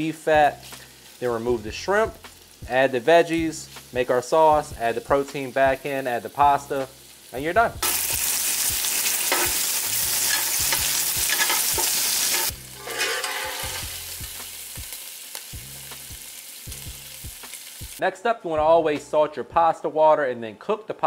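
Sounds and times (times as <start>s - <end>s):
sausage sizzling in oil: 0.0s - 18.0s
utensil stirring in pan: 7.8s - 14.4s.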